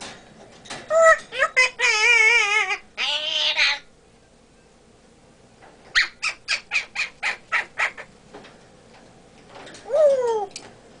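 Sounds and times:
parrot raspy squawk: 0:00.9 - 0:03.9, 0:05.9 - 0:08.1
parrot clicking calls: 0:05.9 - 0:08.1.

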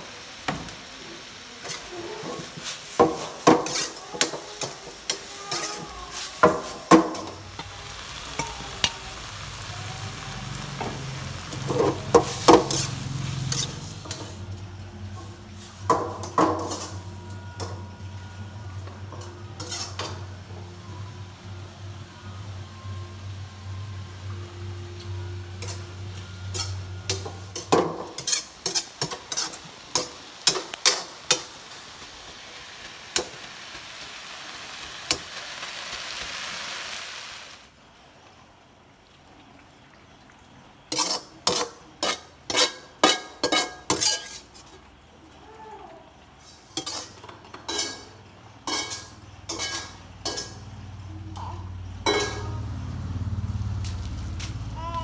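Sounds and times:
food sizzling: 0:00.0 - 0:39.5, 0:40.6 - 0:55.0
metal ladle clanking in frying pan: 0:15.8 - 0:17.8, 0:18.9 - 0:20.2, 0:25.6 - 0:31.6, 0:40.9 - 0:44.8, 0:46.8 - 0:50.8, 0:51.4 - 0:52.6.

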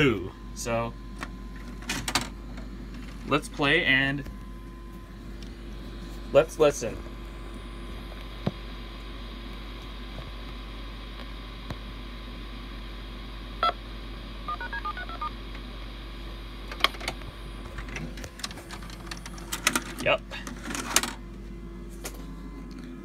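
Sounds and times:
tape hiss and hum: 0:00.0 - 0:23.0
phone dialing beeps: 0:14.5 - 0:15.3.

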